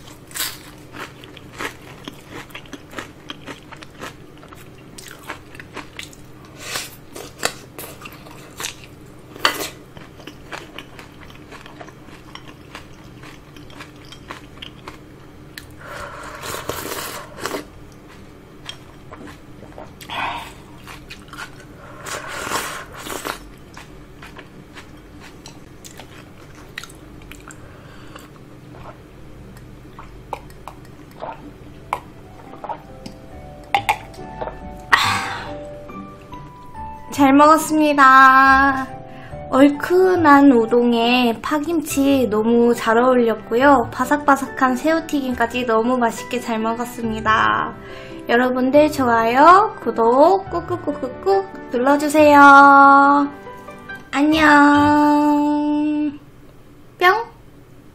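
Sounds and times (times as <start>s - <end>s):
crunchy chewing: 0.0s - 33.0s
slurping broth: 15.8s - 17.7s, 21.8s - 23.4s.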